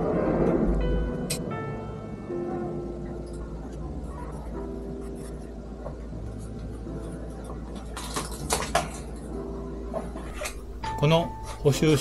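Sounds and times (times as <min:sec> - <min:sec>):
low steady hum: 0:10.3 - 0:12.0.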